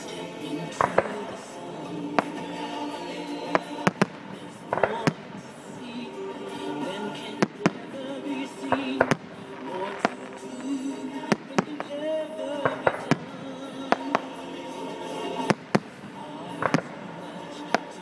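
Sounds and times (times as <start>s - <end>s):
music with held notes: 0.0s - 18.0s
firework shells bursting: 3.5s - 6.0s, 6.9s - 14.4s, 15.0s - 18.0s.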